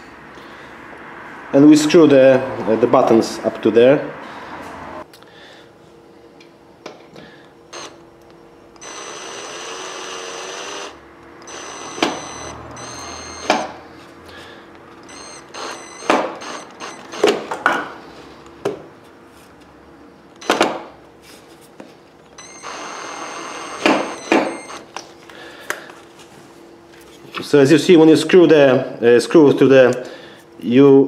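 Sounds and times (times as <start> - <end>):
drill-driver motor whining: 7.7 - 8.1, 8.7 - 13.8, 14.9 - 17.6, 20.3 - 20.8, 22.3 - 25.0.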